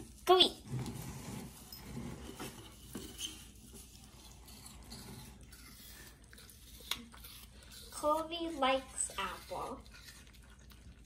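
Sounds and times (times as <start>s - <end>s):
dog chewing wetly: 2.7s - 11.0s.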